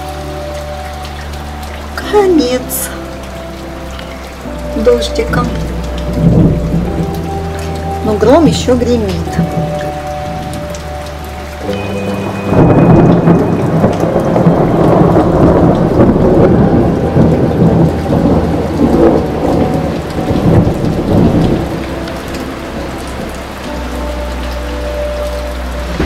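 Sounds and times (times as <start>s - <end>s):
steady rain: 0.0s - 26.0s
thunder rolling: 4.9s - 23.8s.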